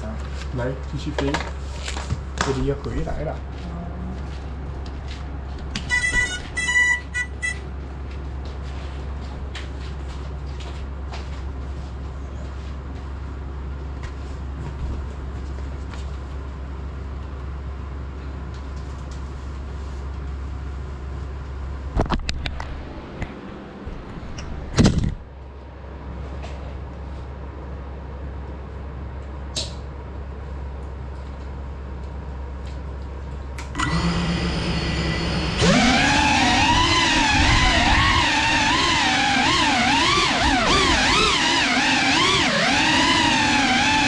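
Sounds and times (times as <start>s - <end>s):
drone propeller hum: 33.8s - 44.0s.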